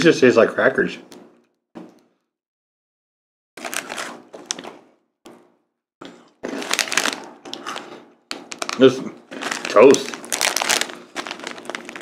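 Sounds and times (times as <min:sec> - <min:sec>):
snack bag crinkling: 0:03.6 - 0:04.8, 0:06.4 - 0:12.0.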